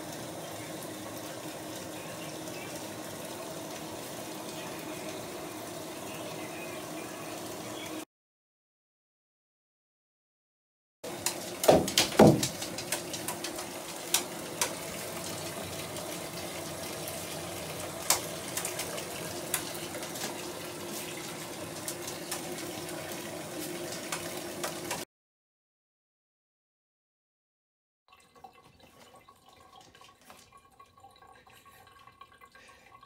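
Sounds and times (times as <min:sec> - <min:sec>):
bath bomb fizzing: 0:11.1 - 0:25.0
splashes into bathtub: 0:11.1 - 0:25.0.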